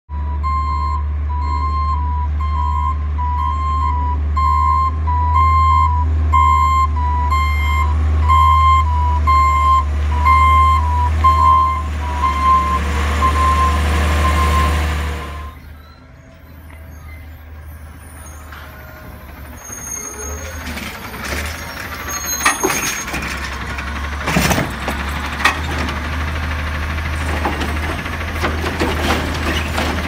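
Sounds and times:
truck back-up alarm beeping: 0.1 - 24.2
truck engine rumble: 0.1 - 30.0.

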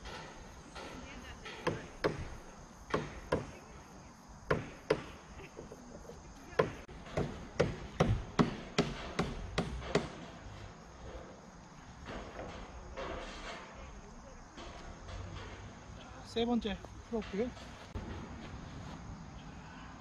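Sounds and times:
sharp knocks: 0.0 - 3.5, 6.6 - 10.4.

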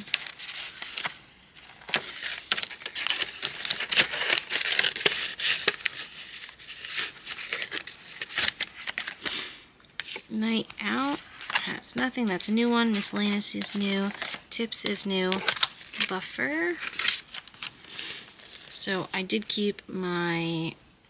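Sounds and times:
paper envelopes rustling: 0.0 - 9.3, 10.0 - 18.8
banknotes being handled: 10.0 - 18.9.

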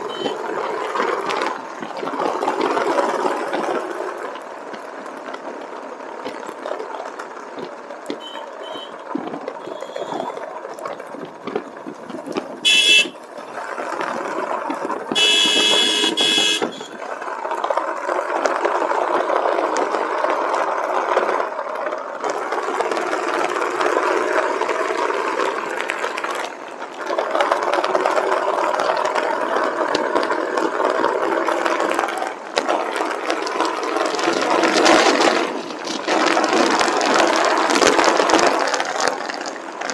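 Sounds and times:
vehicle horn beeps: 0.0 - 0.4, 8.2 - 9.0, 9.6 - 10.4, 12.6 - 13.2, 15.2 - 17.0
motorcycle engine: 0.0 - 10.4, 11.0 - 39.9.

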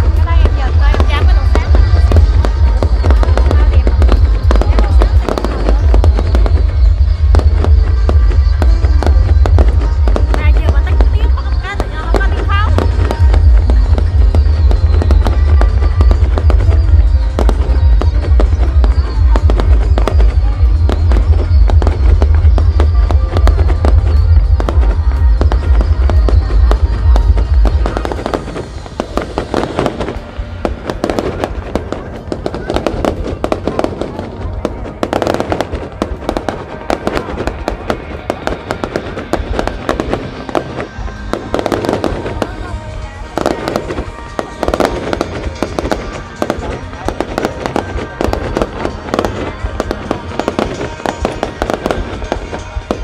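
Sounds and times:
low rumble: 0.0 - 35.0
fireworks bangs and crackles: 0.0 - 53.0
music playing: 0.0 - 53.0.

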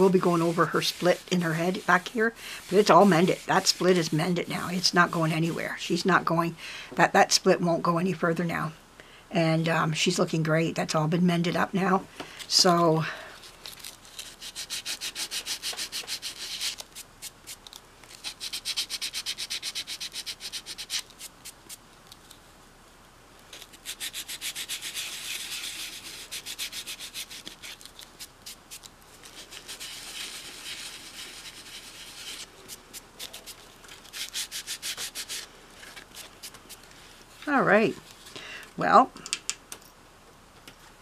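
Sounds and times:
sandpaper hand sanding strokes: 0.0 - 5.6, 14.2 - 17.4, 18.2 - 21.8, 23.8 - 35.5.

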